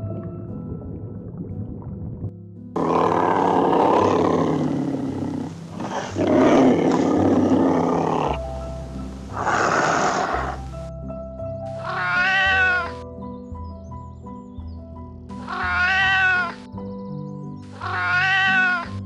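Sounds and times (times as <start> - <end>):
background music: 0.0 - 19.0
animal calling: 2.8 - 8.4, 9.3 - 10.6, 11.8 - 13.0, 15.4 - 16.6, 17.7 - 19.0.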